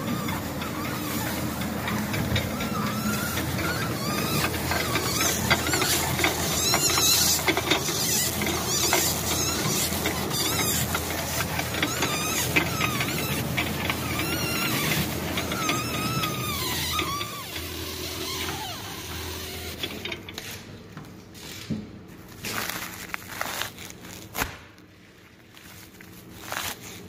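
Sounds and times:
motor hum: 0.0 - 20.4
stretch film crackling and squeaking: 0.0 - 20.6, 22.3 - 24.5, 25.4 - 27.0.

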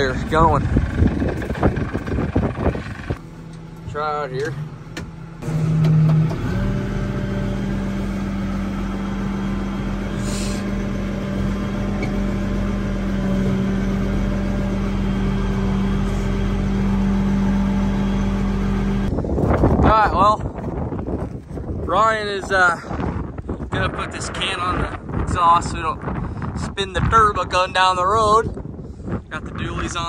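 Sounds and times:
diesel tractor engine starting: 0.0 - 19.5.

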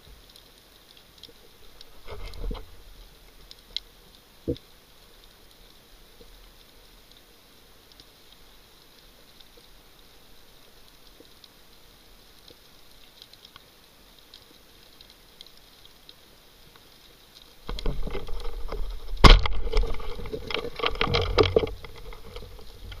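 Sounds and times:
faint crackling underwater: 0.0 - 23.0
sharp crack: 17.7 - 22.4.

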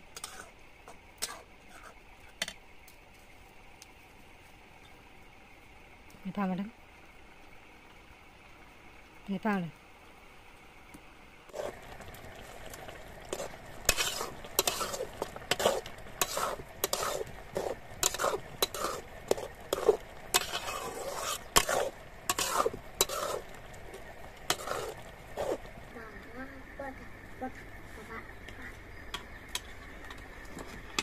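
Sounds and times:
leaves sizzling in a pan: 0.0 - 31.0
metal spatula scraping a pan: 0.2 - 0.6, 1.2 - 2.0, 13.3 - 23.5, 24.5 - 25.6.

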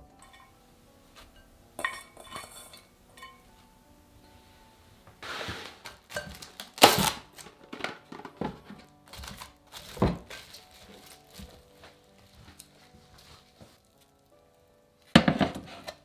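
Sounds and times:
quiet background music: 0.0 - 16.0
cling film ripping and crinkling: 5.2 - 15.2.

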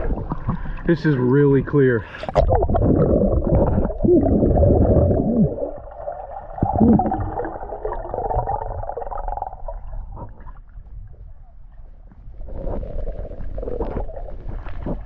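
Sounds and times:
muffled underwater gurgling: 0.0 - 10.6.

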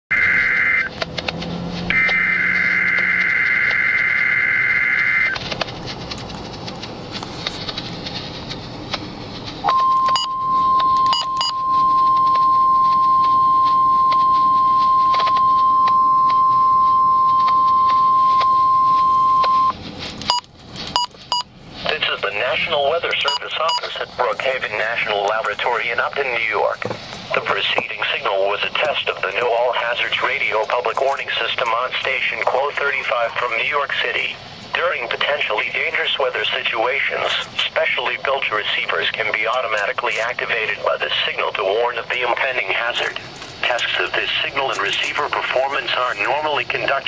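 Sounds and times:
steady warning alarm tone: 0.1 - 1.0, 1.9 - 5.4, 9.6 - 21.5, 23.1 - 24.0
radio hiss: 21.2 - 47.0.

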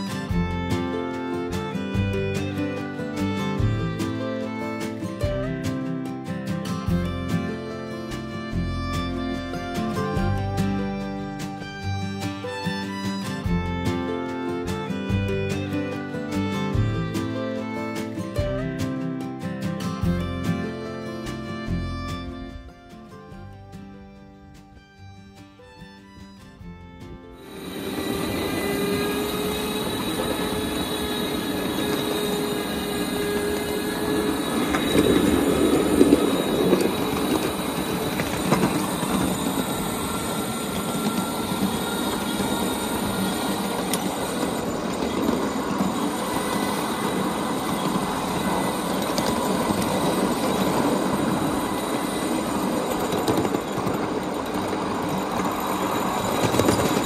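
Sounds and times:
train wheels clattering on rails: 0.0 - 23.5, 27.4 - 57.0
thin whine: 27.3 - 57.0.

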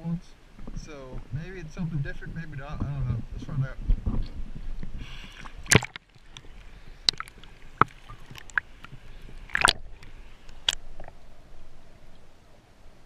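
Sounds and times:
low underwater gurgle: 2.8 - 11.8
underwater clicks and knocks: 3.9 - 11.2
splash into river water: 5.5 - 6.1.

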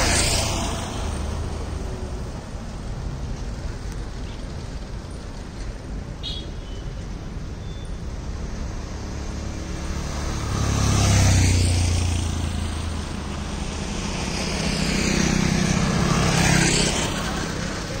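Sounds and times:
motor scooter passing: 0.0 - 2.4, 8.4 - 18.0
lorry engine hum passing: 8.3 - 18.0.

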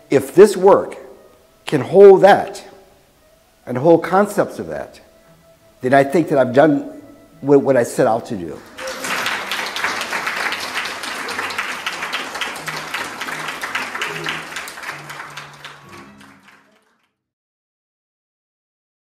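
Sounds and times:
soft background music: 0.0 - 17.2
audience applauding: 8.6 - 17.1.

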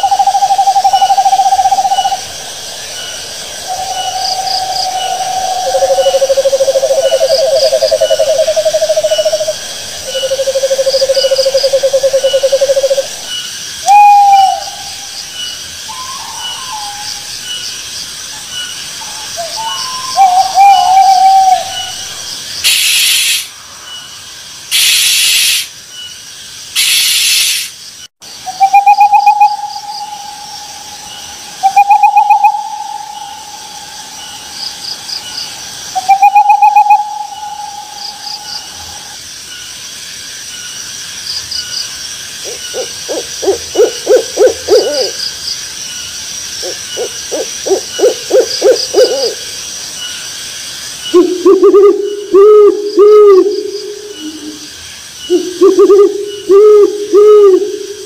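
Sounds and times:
owl hooting: 0.0 - 15.1, 19.0 - 23.5, 28.5 - 34.4, 36.0 - 39.2, 42.4 - 45.2, 46.6 - 49.4, 51.1 - 58.0.

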